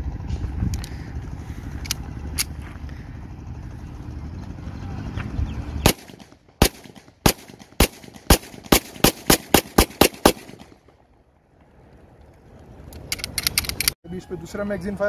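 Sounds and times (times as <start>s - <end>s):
low rumble: 0.0s - 9.2s
pistol shots: 5.8s - 10.8s.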